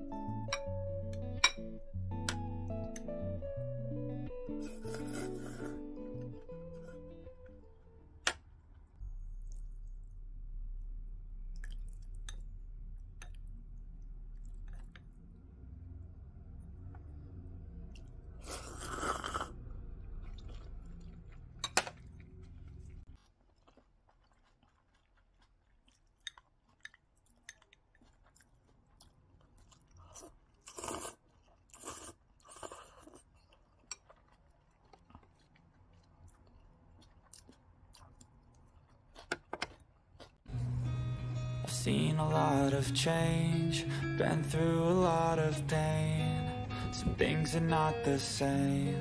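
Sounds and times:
low hum: 0.0 - 23.1, 40.5 - 49.0
noodle slurps: 4.6 - 5.9, 18.4 - 19.6, 30.0 - 33.2
person chewing: 4.6 - 7.0, 11.5 - 15.3, 17.8 - 40.5.

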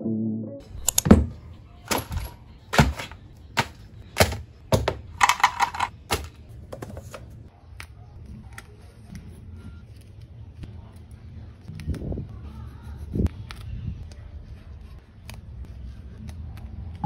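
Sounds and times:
plastic holder rattling: 1.9 - 7.2.

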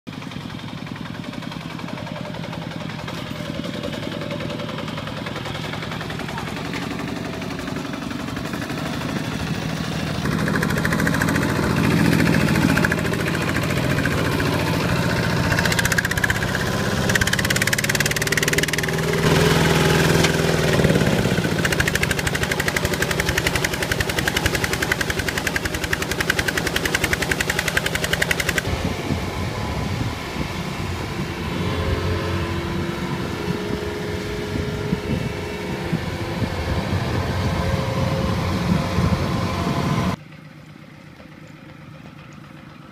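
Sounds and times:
lower rougher engine sound: 0.0 - 42.9
diesel engine running under load: 0.1 - 42.9.

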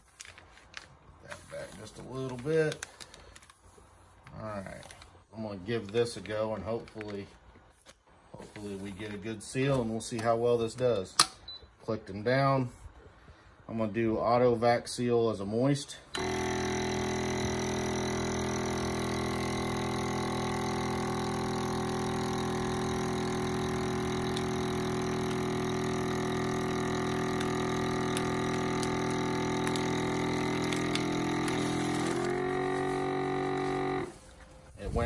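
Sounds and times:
vacuum sealer pump running: 16.1 - 34.7.

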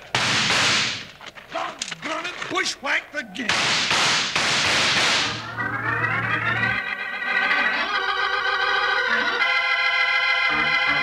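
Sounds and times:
organ chords: 4.7 - 11.0.

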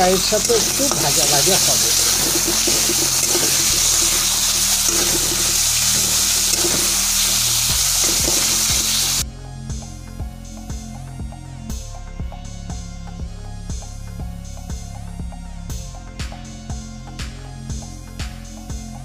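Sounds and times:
chicken sizzling in oil: 0.0 - 9.2
background music with steady beat: 0.0 - 19.0.

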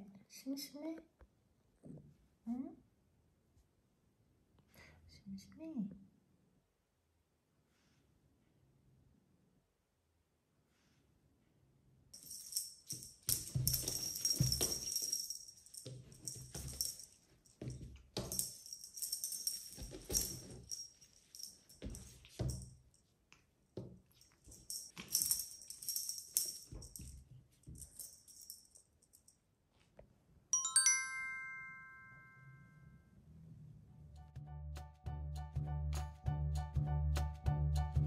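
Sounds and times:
cat toy jingling: 12.2 - 22.7, 24.2 - 28.8
bright chime: 30.6 - 32.9.

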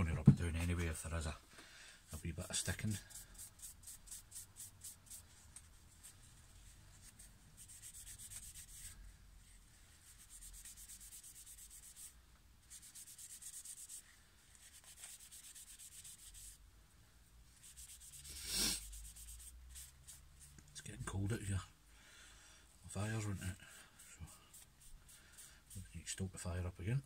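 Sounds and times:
paper rubbing strokes: 2.6 - 16.6, 17.5 - 20.6, 22.9 - 26.2.

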